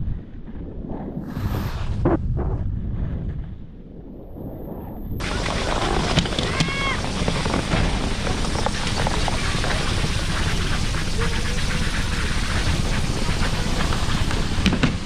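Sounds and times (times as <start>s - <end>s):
wind on microphone: 0.0s - 15.0s
chairlift machinery rumbling: 5.2s - 15.0s.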